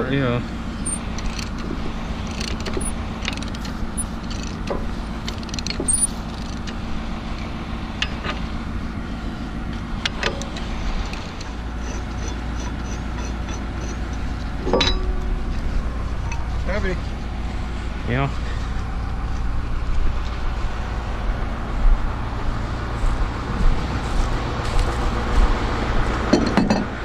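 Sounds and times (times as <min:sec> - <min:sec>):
excavator diesel engine idling: 0:00.0 - 0:27.0
metal clinks and knocks: 0:00.8 - 0:06.8, 0:10.0 - 0:16.6, 0:26.3 - 0:27.0.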